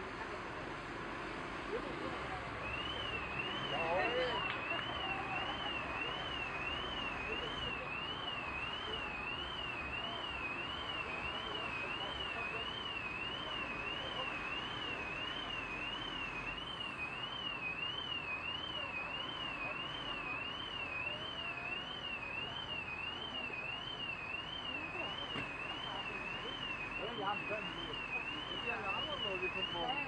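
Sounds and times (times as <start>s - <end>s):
street noise: 0.0s - 30.0s
car alarm warbling: 2.6s - 30.0s.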